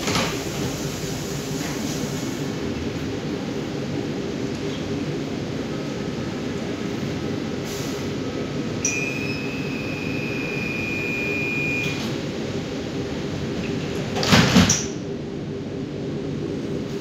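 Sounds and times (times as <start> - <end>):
train interior humming: 0.0 - 17.0
high steady tone: 8.8 - 11.8.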